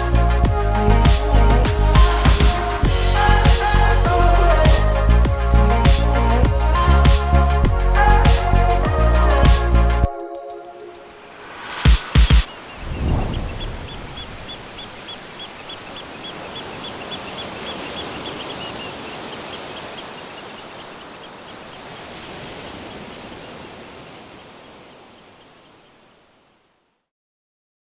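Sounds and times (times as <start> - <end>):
steady rushing noise: 10.6 - 20.2
bird chirping: 11.3 - 22.0.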